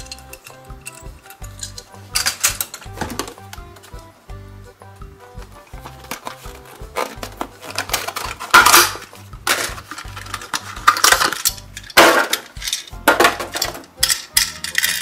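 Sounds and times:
plastic packaging crackling: 5.8 - 13.0.

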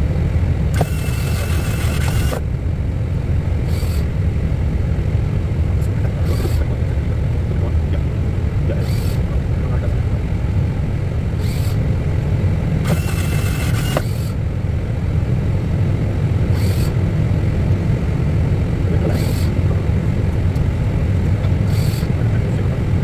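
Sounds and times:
aircraft engines idling rumble: 0.0 - 23.0
short high hisses: 11.4 - 11.8, 21.7 - 22.1.

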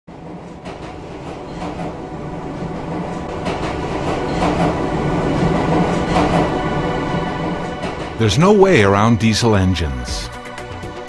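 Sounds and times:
train rumbling on rails: 0.1 - 9.9
train wheels clicking: 2.8 - 6.6.

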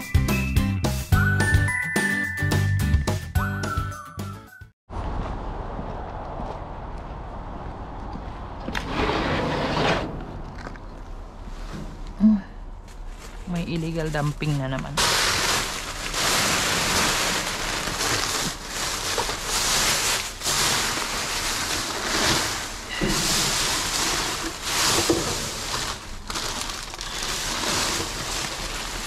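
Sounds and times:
plastic crinkling and rustling: 13.0 - 29.0.

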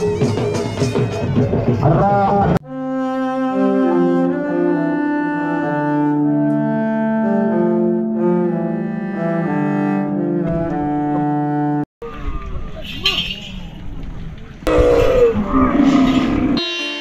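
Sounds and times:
slow held chords: 2.7 - 11.8.

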